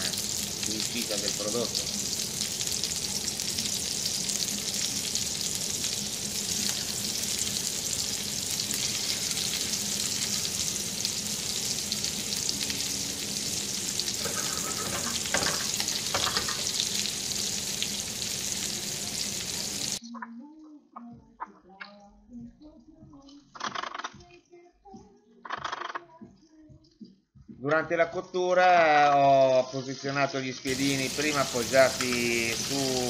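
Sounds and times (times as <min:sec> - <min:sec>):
meat sizzling in a frying pan: 0:00.0 - 0:20.0, 0:29.1 - 0:33.0.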